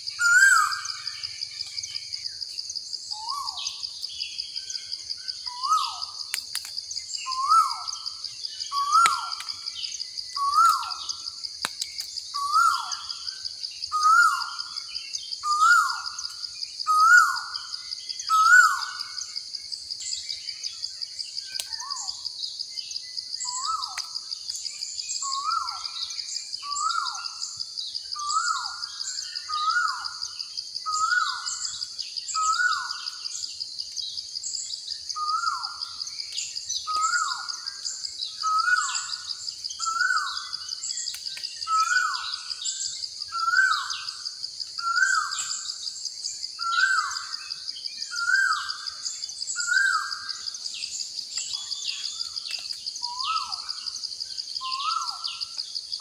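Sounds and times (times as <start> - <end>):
bird calling: 0.0 - 1.8, 7.2 - 11.2, 36.8 - 42.6, 51.5 - 53.9, 54.6 - 55.5.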